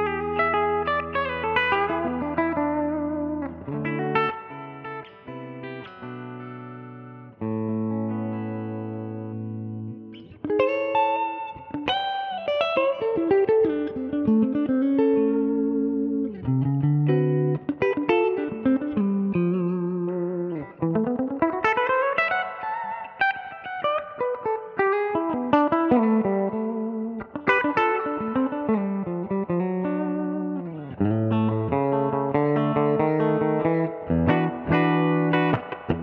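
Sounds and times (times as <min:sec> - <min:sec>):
clean electric guitar with reverb: 0:00.0 - 0:36.0.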